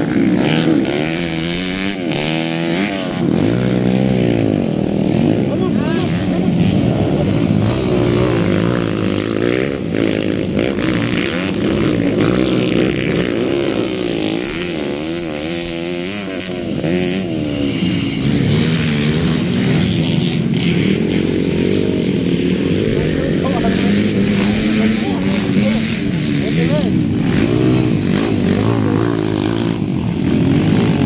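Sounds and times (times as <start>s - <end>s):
dirt bike engines revving: 0.0s - 31.0s.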